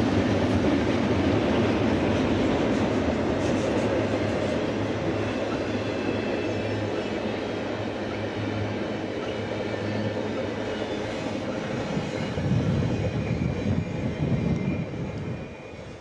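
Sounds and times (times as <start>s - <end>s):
freight train wheels rumbling: 0.0s - 16.0s.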